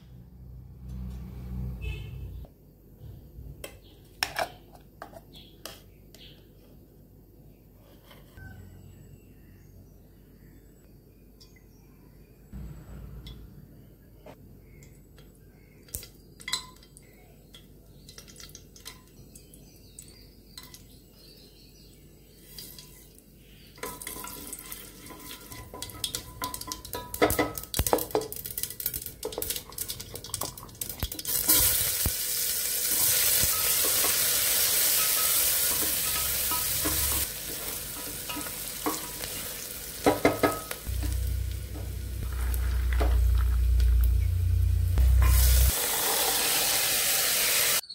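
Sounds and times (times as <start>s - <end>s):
low rumble: 12.6s - 14.2s, 40.9s - 45.7s
onions sizzling in hot oil: 23.8s - 47.9s.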